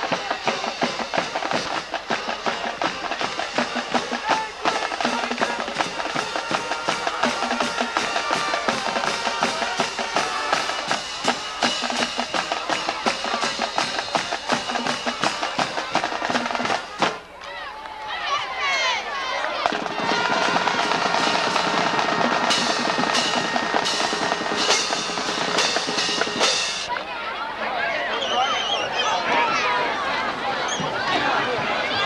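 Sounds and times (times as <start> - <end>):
brass notes: 0.0 - 17.2, 19.5 - 26.9
drums beating: 0.0 - 17.3, 18.3 - 27.1.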